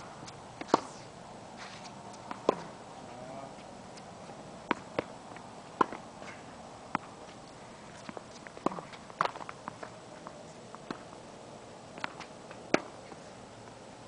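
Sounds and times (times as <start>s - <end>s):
tennis balls struck by racquets: 0.0s - 3.3s, 3.9s - 11.2s, 11.9s - 13.2s
tennis balls bouncing on hard court: 0.2s - 1.0s, 1.6s - 2.8s, 3.9s - 11.2s, 12.0s - 13.2s.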